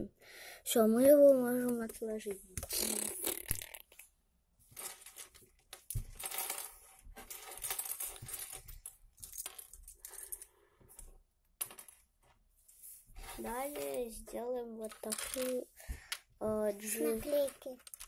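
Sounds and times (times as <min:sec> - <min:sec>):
plastic bricks clicking and clattering: 0:02.6 - 0:04.0, 0:04.8 - 0:10.5, 0:13.3 - 0:18.0.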